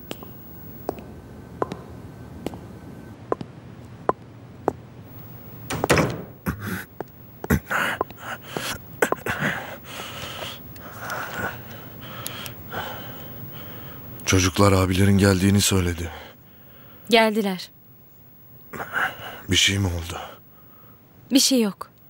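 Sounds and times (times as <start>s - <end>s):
knocks and rustling: 5.7s - 6.4s.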